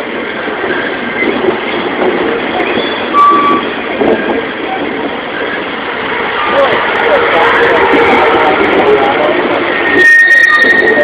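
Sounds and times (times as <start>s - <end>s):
train wheels rumbling on rail: 0.0s - 11.0s
short high beep: 2.8s - 3.7s.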